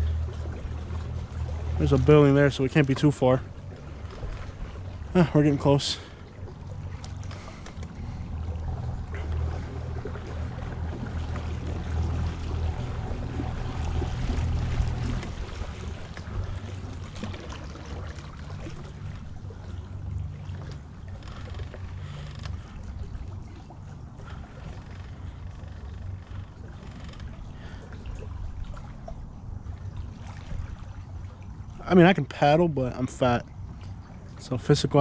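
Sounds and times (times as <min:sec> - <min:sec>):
small boat motor humming: 0:00.0 - 0:35.0.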